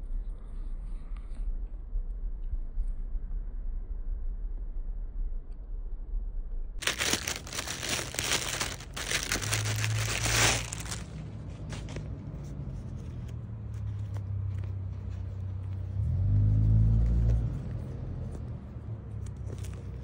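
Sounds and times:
steady low rumble: 0:01.5 - 0:13.1
plastic bag crinkling: 0:06.8 - 0:11.2
fabric bag rustling: 0:06.8 - 0:12.0.

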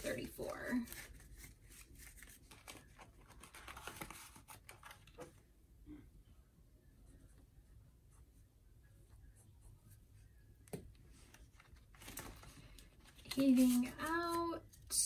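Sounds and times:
paper rustle: 0:00.0 - 0:05.4, 0:11.1 - 0:14.8.

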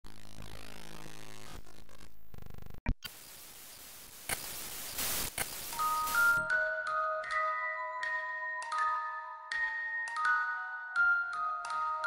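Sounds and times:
glitchy electronic buzz: 0:00.1 - 0:06.5
static hiss: 0:01.0 - 0:06.5.

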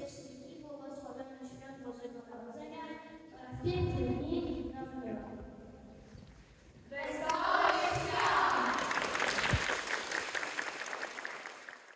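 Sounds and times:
voices cheering: 0:07.0 - 0:10.2
audience applause: 0:07.1 - 0:11.9.

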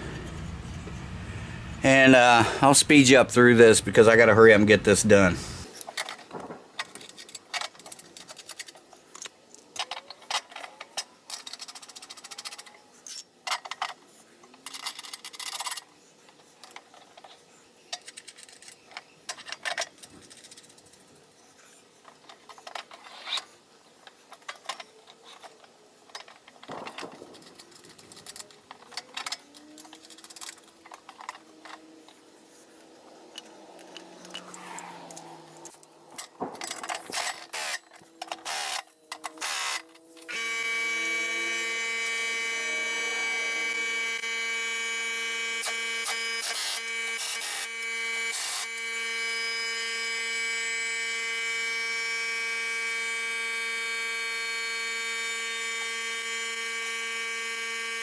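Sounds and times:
loud steady buzzing tone: 0:00.0 - 0:04.3, 0:26.7 - 0:58.0.

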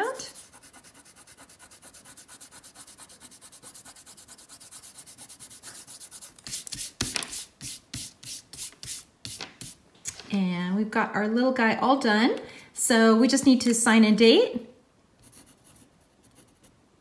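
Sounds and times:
fingertips rubbing paper: 0:00.2 - 0:09.8
hand swiping across paper: 0:05.5 - 0:09.8.

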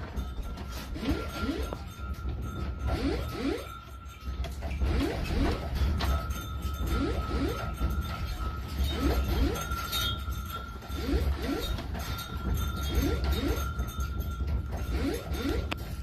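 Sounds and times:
household objects clinking and rattling: 0:00.0 - 0:16.0
short rising squeaks: 0:02.8 - 0:03.8, 0:04.6 - 0:16.0
steady high tone: 0:02.8 - 0:03.9, 0:04.6 - 0:10.2.

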